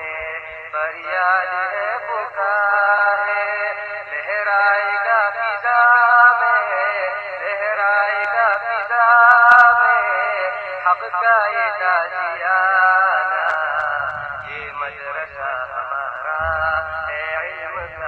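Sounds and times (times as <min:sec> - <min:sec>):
men singing long held notes: 0:12.3 - 0:18.0.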